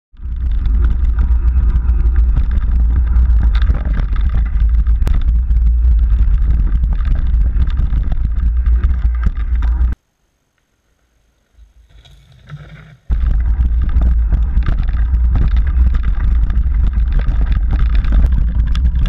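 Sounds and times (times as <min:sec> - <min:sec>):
bike rattling and clicking: 0:00.1 - 0:10.0, 0:12.0 - 0:19.0
wind buffeting microphone: 0:00.2 - 0:10.0, 0:13.1 - 0:19.0.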